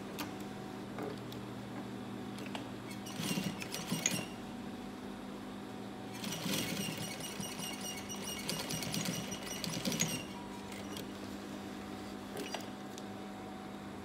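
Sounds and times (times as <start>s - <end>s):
sewing machine motor hum: 2.9s - 4.4s, 6.1s - 11.2s.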